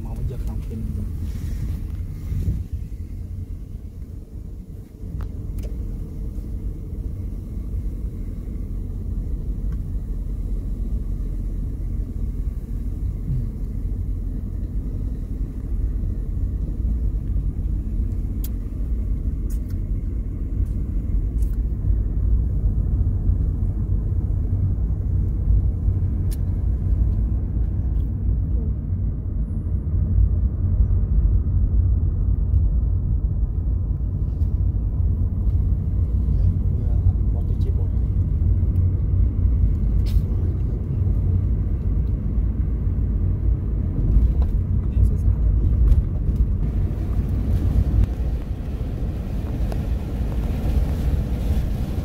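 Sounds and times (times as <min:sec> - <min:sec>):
car engine and tyre rumble: 0:00.0 - 0:52.0.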